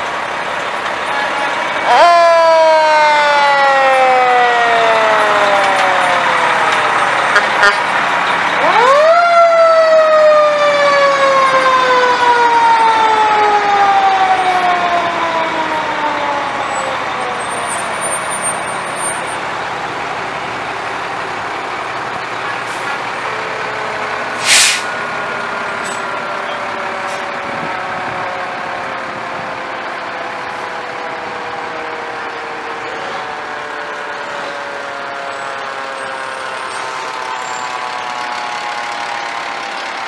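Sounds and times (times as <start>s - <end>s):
diesel engines running: 0.0s - 40.0s
siren winding down: 1.7s - 20.0s, 22.6s - 40.0s
short sharp hiss: 24.4s - 24.9s.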